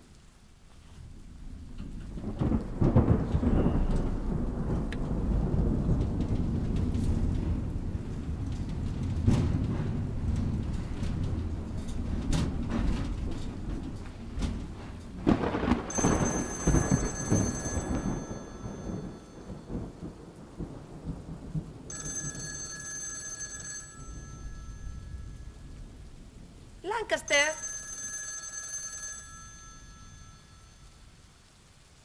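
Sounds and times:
steady rain: 0:00.0 - 0:32.0
rolling thunder: 0:01.1 - 0:22.9
telephone ringing: 0:15.9 - 0:19.6, 0:21.9 - 0:25.7, 0:27.1 - 0:31.0.

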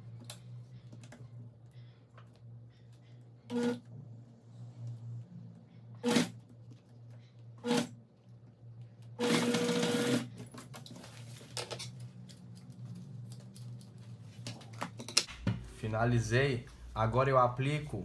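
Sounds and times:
sewing machine stitching: 0:03.5 - 0:03.8, 0:06.0 - 0:06.4, 0:07.6 - 0:08.0, 0:09.2 - 0:10.4.

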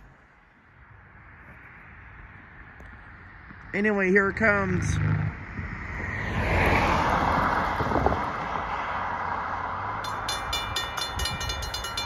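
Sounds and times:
car passing by: 0:04.2 - 0:10.1
railroad crossing bell ringing: 0:10.0 - 0:12.0.

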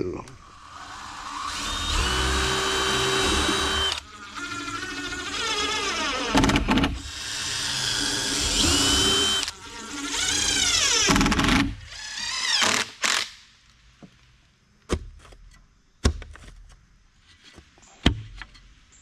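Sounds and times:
electric drill whining: 0:00.5 - 0:13.3.

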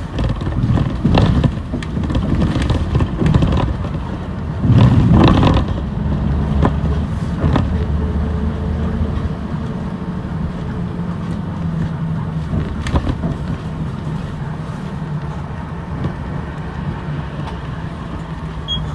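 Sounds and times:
sharp knocks and rattles: 0:00.0 - 0:08.0
bus engine and road hum: 0:00.0 - 0:18.9.

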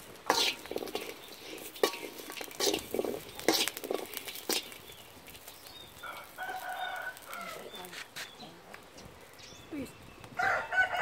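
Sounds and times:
metal ladle scraping wok: 0:00.0 - 0:06.4.

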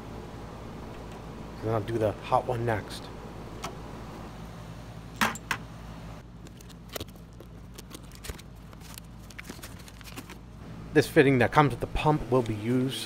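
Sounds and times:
steady low hum: 0:00.0 - 0:13.0
hands handling parts clicking: 0:06.4 - 0:10.5.

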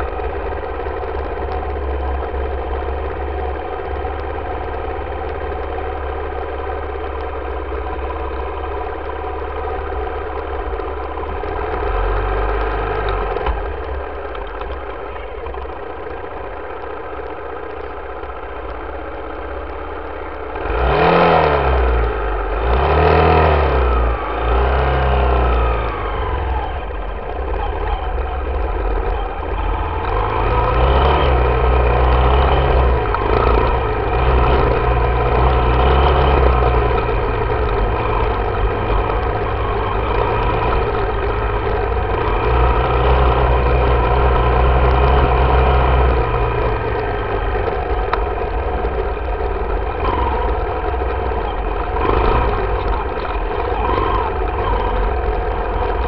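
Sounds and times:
dirt bike engine revving: 0:20.4 - 0:56.0.

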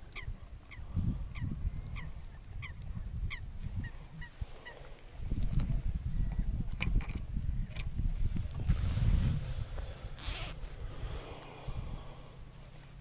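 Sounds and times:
birds calling: 0:00.0 - 0:05.0
low wind rumble: 0:00.0 - 0:13.0.

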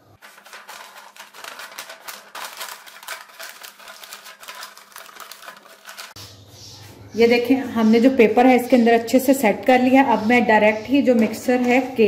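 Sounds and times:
paper folding and crackling: 0:00.2 - 0:06.2.

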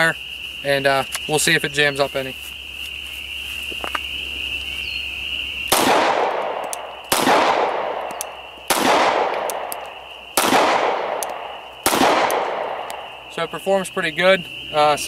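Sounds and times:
pistol shots echoing: 0:05.7 - 0:13.1.

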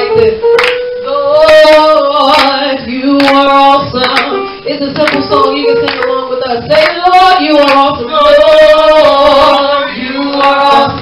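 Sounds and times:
woman singing through microphone: 0:00.0 - 0:11.0.

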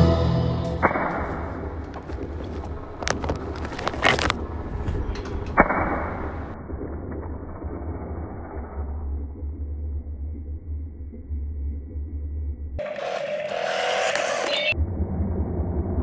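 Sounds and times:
steady low hum: 0:00.0 - 0:12.8.

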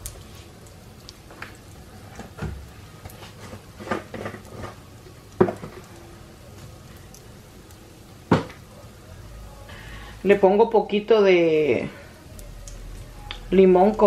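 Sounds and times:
rice sizzling in hot oil: 0:00.0 - 0:09.0.

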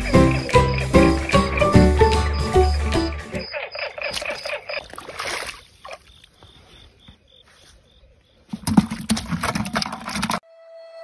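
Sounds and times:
water splashing: 0:00.0 - 0:06.4
eels thrashing in a bucket: 0:08.5 - 0:10.4.

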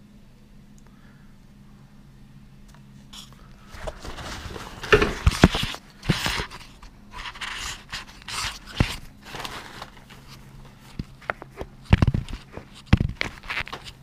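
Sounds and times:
gloved hands scraping and rustling: 0:03.0 - 0:14.0.

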